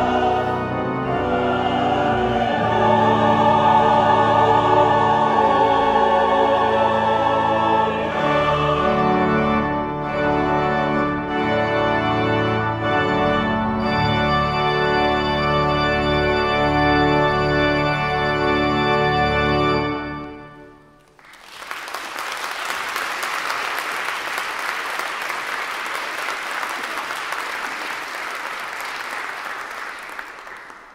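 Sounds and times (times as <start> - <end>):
church organ chord: 0.0 - 21.1
audience applause: 21.0 - 30.9.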